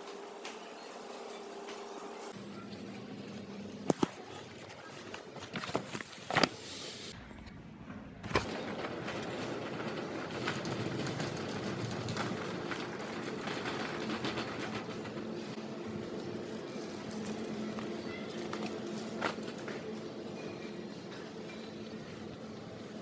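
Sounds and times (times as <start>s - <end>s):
shopping trolley wheels rattling: 8.2s - 23.0s.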